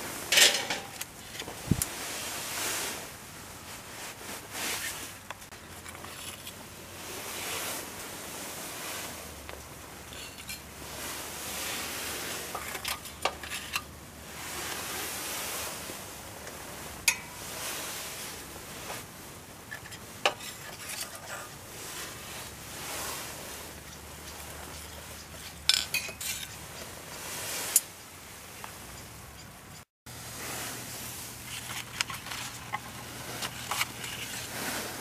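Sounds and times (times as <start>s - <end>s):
tongs scraping through charcoal: 0.2s - 1.9s, 5.6s - 6.6s, 10.0s - 14.8s, 16.5s - 17.8s, 18.8s - 28.2s, 31.1s - 35.0s
tongs clinking against grill: 0.3s - 1.1s, 17.1s - 17.4s.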